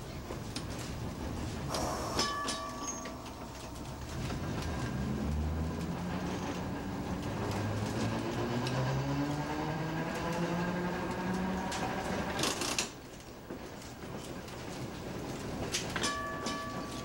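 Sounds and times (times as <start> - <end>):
streetcar traction motor whine: 0.2 - 13.6.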